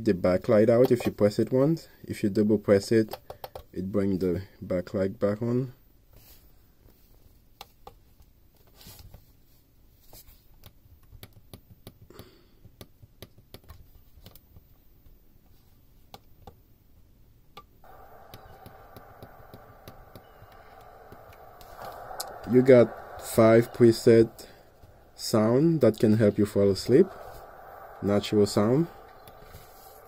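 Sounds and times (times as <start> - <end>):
rushing nature sound from speaker: 17.8 - 30.0.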